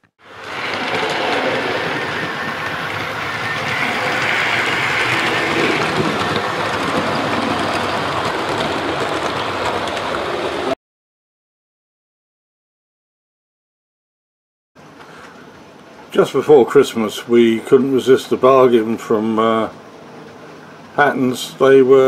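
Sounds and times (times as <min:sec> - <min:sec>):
model train running on track: 0:00.2 - 0:10.8, 0:16.2 - 0:22.0.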